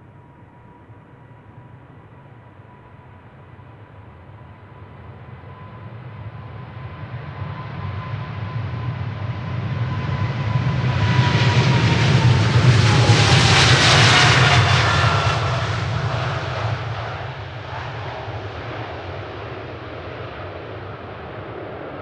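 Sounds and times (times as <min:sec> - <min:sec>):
jet plane passing by: 0:03.4 - 0:22.0.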